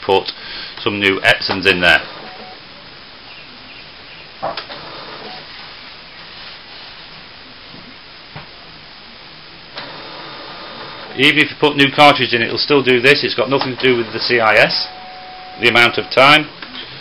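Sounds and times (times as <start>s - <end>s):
inkjet printer whirring: 9.8s - 11.3s, 13.5s - 16.4s.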